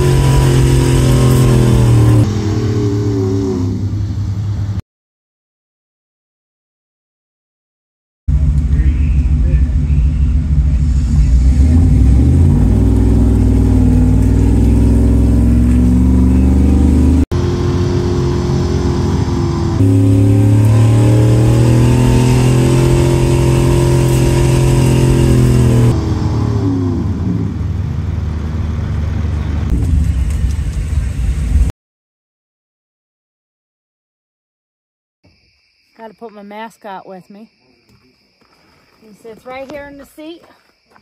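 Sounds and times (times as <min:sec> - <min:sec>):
truck engine revving under load: 0:00.0 - 0:04.8, 0:08.3 - 0:31.7.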